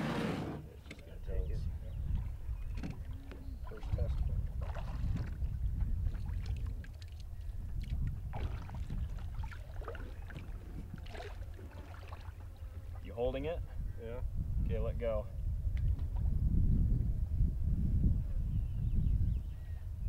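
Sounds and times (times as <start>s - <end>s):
wind rumble on microphone: 1.1s - 20.0s
water splashing and sloshing: 2.2s - 13.0s.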